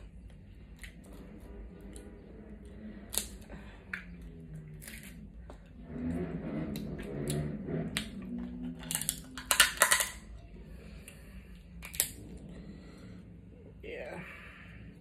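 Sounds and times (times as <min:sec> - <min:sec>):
crab shells cracking: 0:03.1 - 0:03.4, 0:08.8 - 0:10.2, 0:11.8 - 0:12.2.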